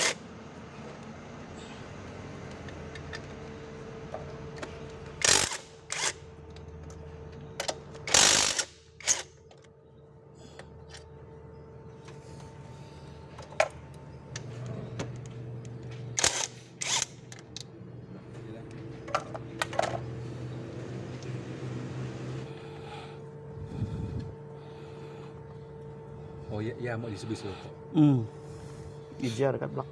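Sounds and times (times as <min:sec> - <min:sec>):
ratchet wrench clicking: 0:05.2 - 0:06.2, 0:08.1 - 0:09.3, 0:16.2 - 0:17.4.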